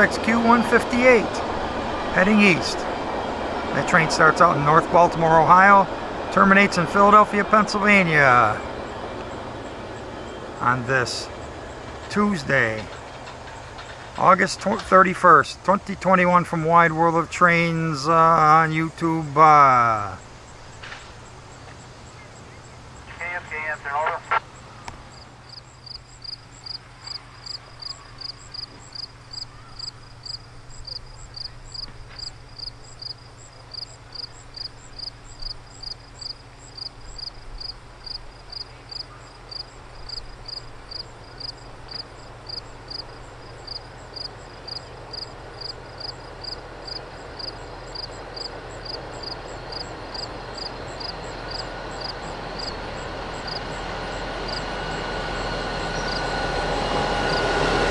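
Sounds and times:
train rumbling: 0.0s - 57.9s.

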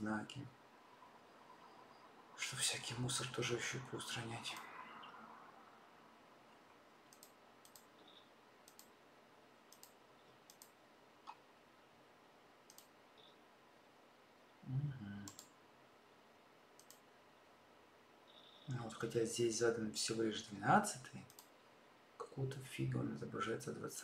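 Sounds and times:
computer mouse clicking: 7.1s - 8.9s, 9.7s - 11.4s, 12.6s - 13.4s, 15.2s - 15.6s, 16.8s - 17.0s, 18.3s - 19.2s, 21.3s - 21.6s.

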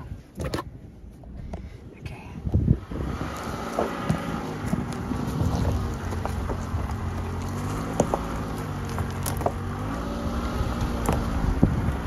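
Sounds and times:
car engine hum: 0.0s - 12.0s
tyres rolling over gravel: 2.9s - 12.0s
stones popping under tyres: 3.0s - 12.0s.

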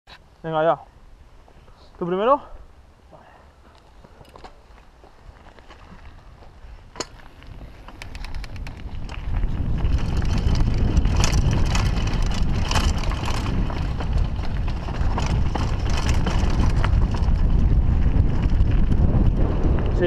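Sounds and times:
bike rattling: 3.9s - 20.0s
wind on microphone: 5.9s - 20.0s.

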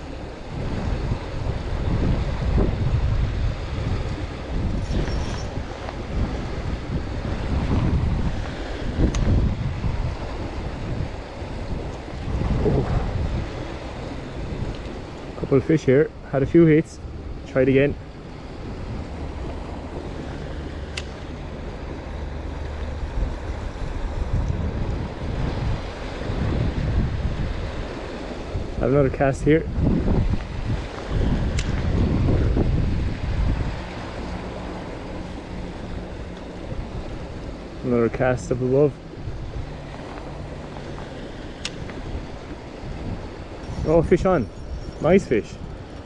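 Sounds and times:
river water rushing: 0.0s - 46.0s
wind buffeting microphone: 0.0s - 46.0s
sharp tick: 9.1s - 9.3s, 20.9s - 21.2s, 31.5s - 31.8s, 41.6s - 42.0s
sharp click: 31.5s - 31.8s.

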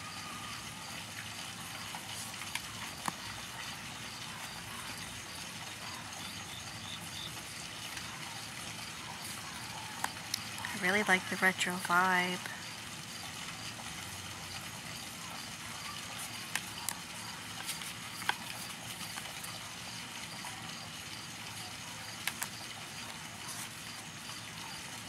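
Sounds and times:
card edges clicking: 16.2s - 19.5s, 22.2s - 22.6s.

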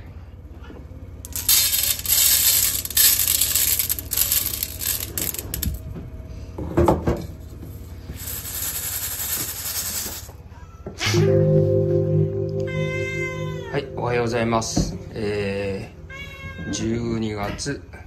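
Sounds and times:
dry cat food pouring into bowl: 1.3s - 5.8s, 8.2s - 10.3s.

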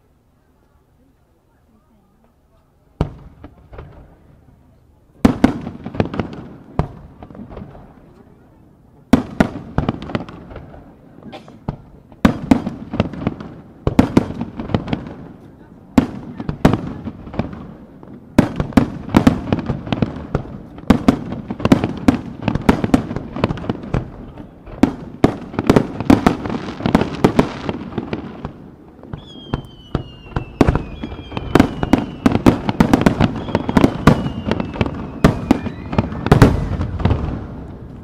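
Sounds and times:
firework bangs: 2.9s - 38.0s
firework whistles gliding down: 29.1s - 37.0s.

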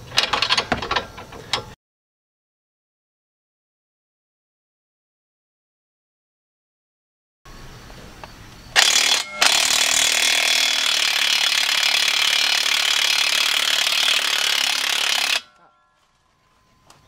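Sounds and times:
impact wrench hammering: 8.8s - 15.7s.

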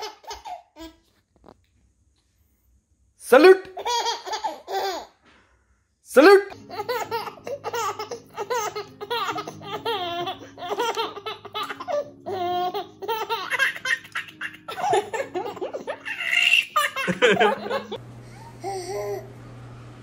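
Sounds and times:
baby laughing: 0.0s - 1.0s, 3.5s - 5.2s, 6.3s - 19.3s
background music: 6.1s - 18.0s.

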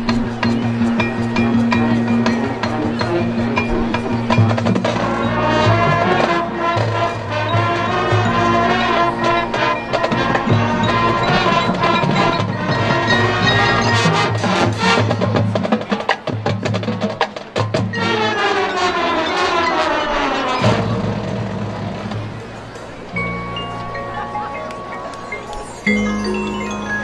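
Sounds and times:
brass and woodwind chords: 0.0s - 15.2s, 18.0s - 21.6s
drumline percussion: 0.0s - 27.0s.

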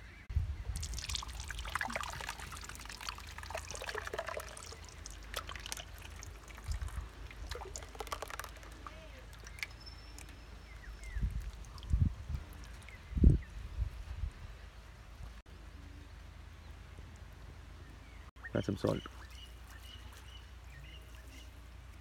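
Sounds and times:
marinade plopping and splattering: 0.7s - 13.0s.

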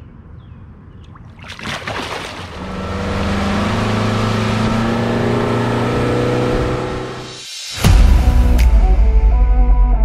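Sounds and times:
water splash: 1.1s - 3.7s
boat motor humming: 1.4s - 5.2s.

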